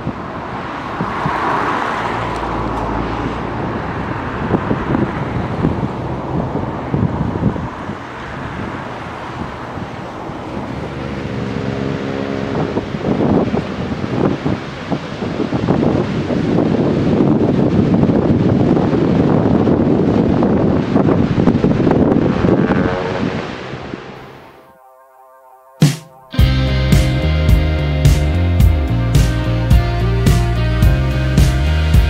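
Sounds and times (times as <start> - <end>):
engine humming: 0.0 - 15.7, 19.5 - 24.8, 26.2 - 32.0
cars driving past: 0.0 - 18.6, 19.2 - 24.8
wind on microphone: 0.0 - 24.7.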